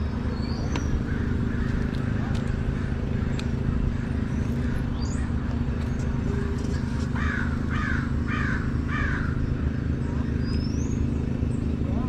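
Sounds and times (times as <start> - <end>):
motorcycle engine rumbling: 0.0 - 12.0
crow cawing: 1.0 - 4.9, 7.0 - 9.4.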